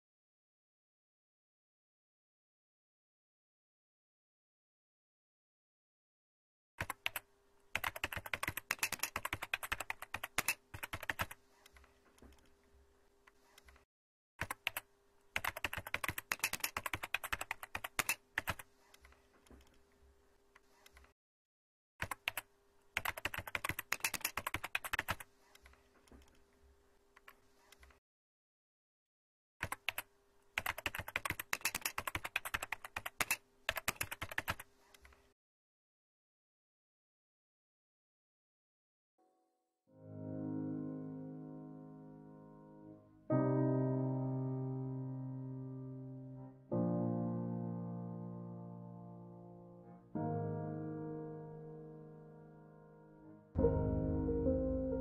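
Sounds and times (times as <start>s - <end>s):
computer keyboard typing: 6.8s - 12.5s, 14.4s - 19.8s, 22.0s - 26.4s, 29.6s - 35.2s.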